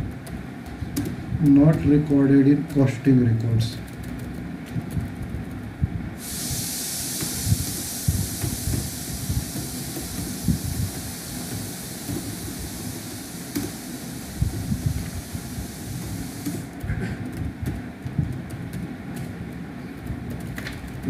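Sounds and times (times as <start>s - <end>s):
typing on computer keyboard: 3.8s - 5.2s
steady hiss: 6.1s - 16.8s.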